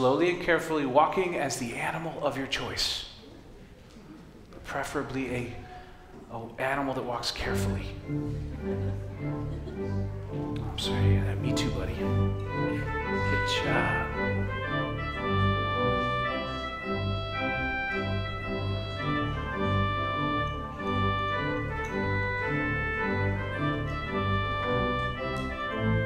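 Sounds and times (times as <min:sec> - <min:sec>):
church organ playing chords: 0:07.6 - 0:26.0.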